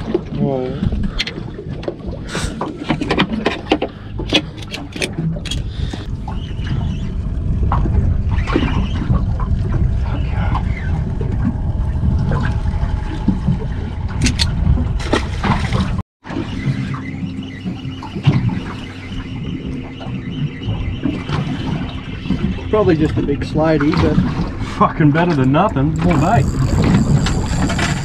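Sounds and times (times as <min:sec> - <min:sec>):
water around a boat: 0:00.0 - 0:28.0
wind: 0:00.0 - 0:28.0
fishing gear clicking and knocking: 0:02.9 - 0:06.0, 0:25.9 - 0:28.0.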